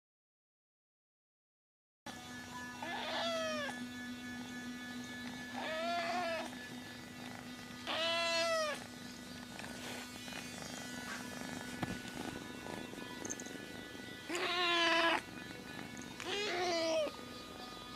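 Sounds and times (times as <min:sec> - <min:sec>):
kitten meowing: 0:02.8 - 0:03.8, 0:05.6 - 0:06.6, 0:07.8 - 0:08.8, 0:14.3 - 0:15.3, 0:16.2 - 0:17.2.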